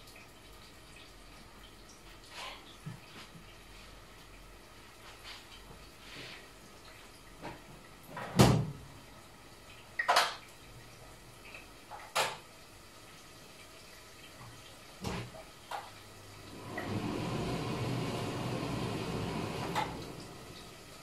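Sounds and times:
exhaust fan running: 16.4 - 21.0.

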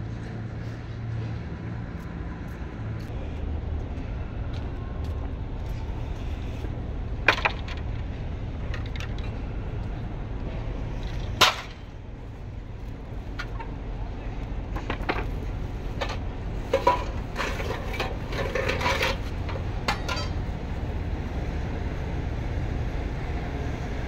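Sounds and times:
low hum: 0.0 - 24.0
firewood knocking and clattering: 7.2 - 9.4, 11.0 - 11.8, 14.7 - 20.4.

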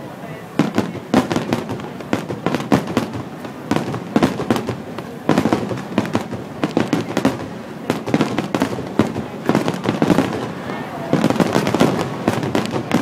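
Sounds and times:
fireworks bursting and crackling: 0.0 - 13.0.

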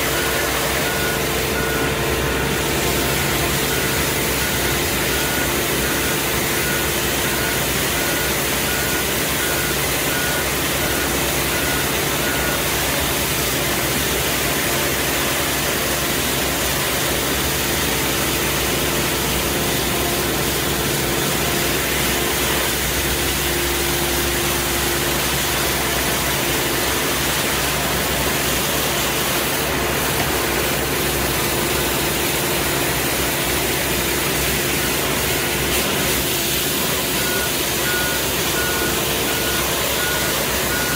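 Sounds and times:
street sweeper engine drone: 0.0 - 40.9
high pulsing beep: 0.1 - 13.0, 37.0 - 40.9.

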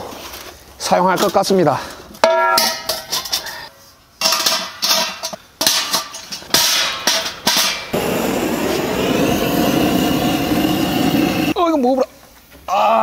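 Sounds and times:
butane torch hissing: 7.8 - 11.6.

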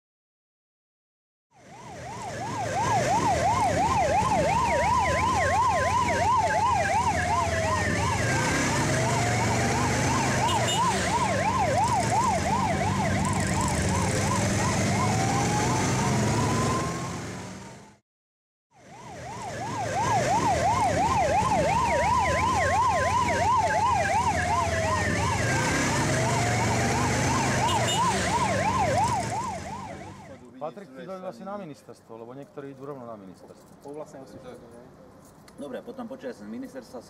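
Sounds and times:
siren wailing: 1.6 - 17.8, 18.8 - 30.5
siren yelping: 1.6 - 17.8, 18.8 - 30.5.

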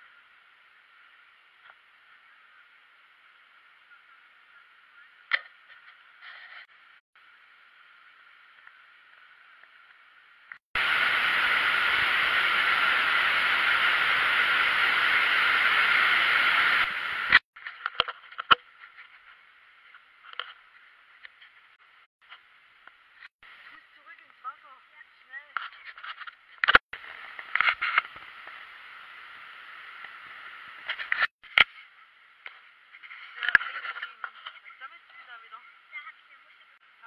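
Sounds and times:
loud steady rushing noise: 10.8 - 17.4.

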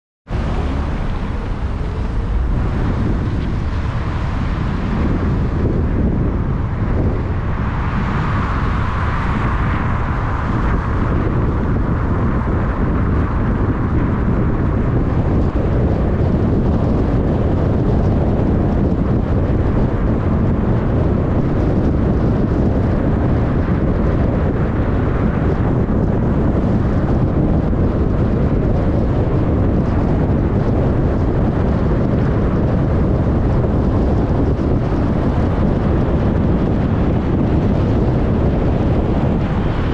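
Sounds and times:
road and wind noise: 0.2 - 39.9.

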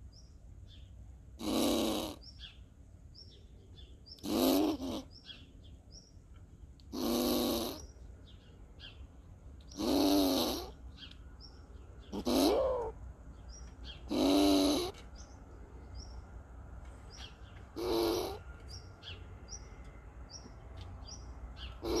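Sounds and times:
squirrel giving hoarse calls: 1.4 - 2.5, 4.2 - 5.4, 6.9 - 7.9, 9.7 - 10.8, 12.0 - 13.0, 13.8 - 15.0, 17.8 - 18.4, 21.6 - 22.0.

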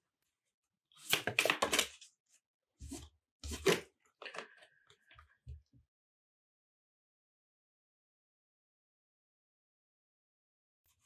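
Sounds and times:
cardboard cards sliding and rustling: 2.8 - 3.9.

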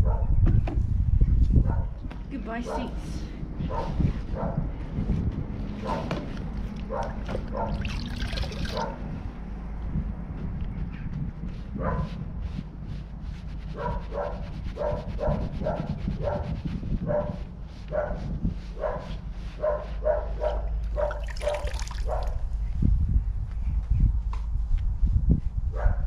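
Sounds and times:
dog barking: 0.0 - 0.3, 1.6 - 2.0, 2.6 - 3.0, 3.7 - 4.7, 5.8 - 6.2, 6.8 - 7.9, 8.7 - 9.0, 11.8 - 12.2, 13.8 - 18.2, 18.8 - 22.4, 25.8 - 26.0.

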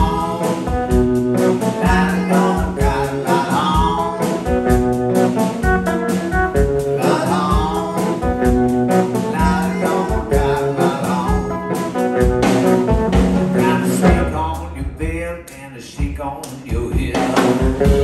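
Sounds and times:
man singing: 0.0 - 4.9, 6.8 - 12.3, 13.4 - 18.0
drums: 0.0 - 18.0
guitar: 0.0 - 18.0.

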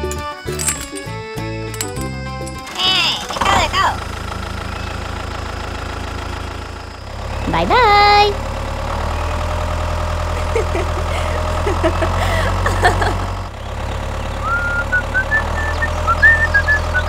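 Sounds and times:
tractor engine idling: 0.0 - 17.0.

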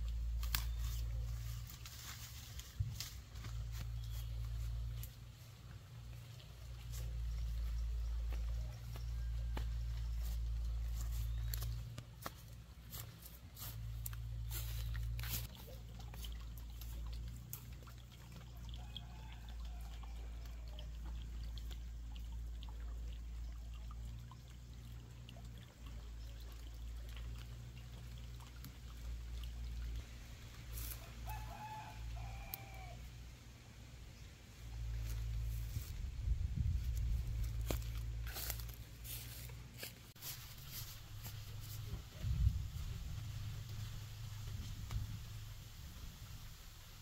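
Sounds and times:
footsteps through dry brush: 0.2 - 17.1, 30.6 - 31.9, 34.9 - 43.1
distant rooster crowing: 30.8 - 33.0
wind rumble on microphone: 35.2 - 38.4, 41.5 - 47.0.

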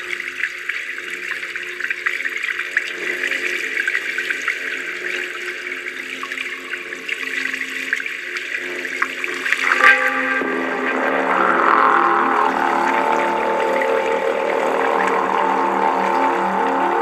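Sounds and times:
water trickling and bubbling: 0.0 - 17.0
low held tones: 9.6 - 17.0.

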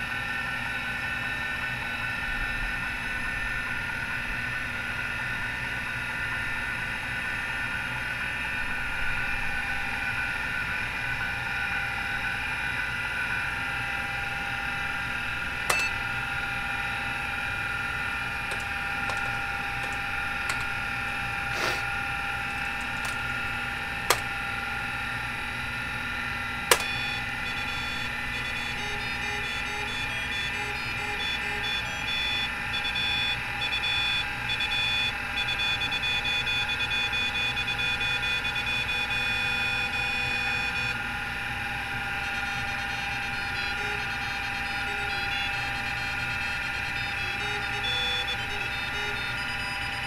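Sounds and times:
hard drive whining: 8.6 - 50.0
sharp clicks: 18.5 - 20.8, 22.5 - 23.2, 24.1 - 24.3, 26.7 - 31.6.

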